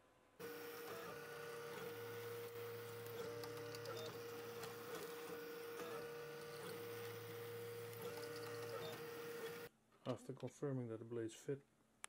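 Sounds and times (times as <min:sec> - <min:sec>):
stepper motors whining: 0:00.4 - 0:09.7.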